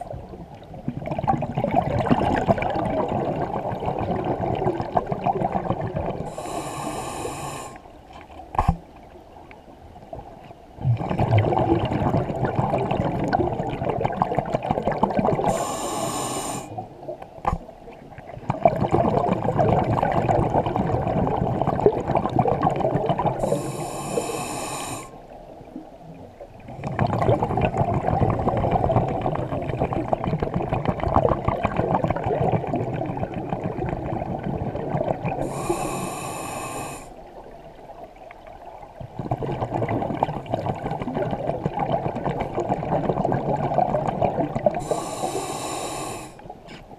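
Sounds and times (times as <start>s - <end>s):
bubbling exhaust underwater: 0.0s - 8.8s, 10.7s - 46.8s
regulator hissing inhale: 6.3s - 7.9s, 15.5s - 16.8s, 23.4s - 25.2s, 35.4s - 37.2s, 44.8s - 46.5s.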